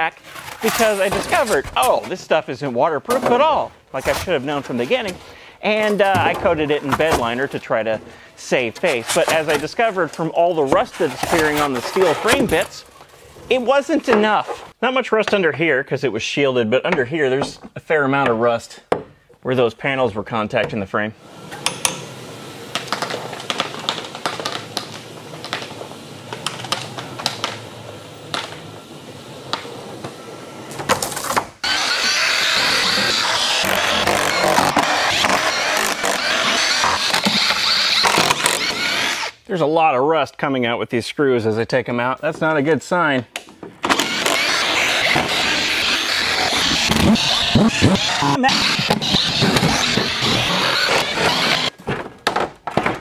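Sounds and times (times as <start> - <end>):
floor sweeper rolling and rattling: 21.2 - 38.0, 43.9 - 51.7
power drill whirring: 31.6 - 39.4, 43.8 - 51.8.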